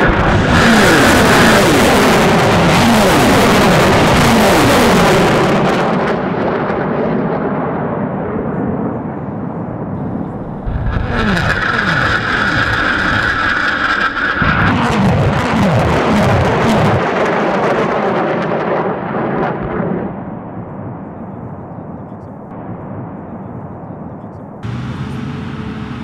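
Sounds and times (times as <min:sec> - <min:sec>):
rocket motors roaring: 0:00.0 - 0:06.2, 0:09.7 - 0:20.4, 0:24.6 - 0:26.0
rockets launching with roar: 0:00.0 - 0:21.2.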